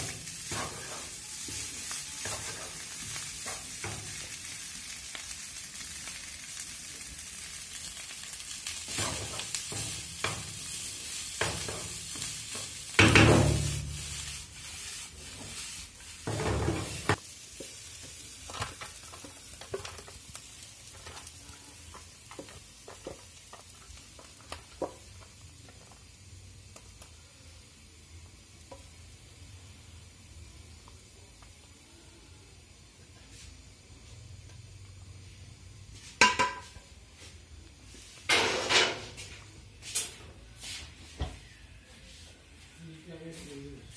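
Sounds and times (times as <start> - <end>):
rice sizzling in a frying pan: 0.0 - 43.9
wooden spatula scraping a pan: 0.3 - 4.3, 8.8 - 20.2.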